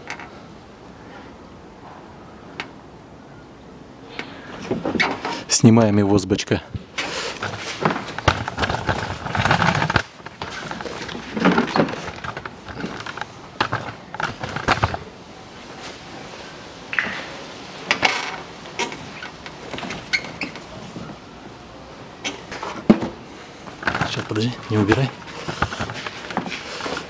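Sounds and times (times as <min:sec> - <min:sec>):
plastic clicking and scraping: 0:07.0 - 0:15.1, 0:23.7 - 0:27.0.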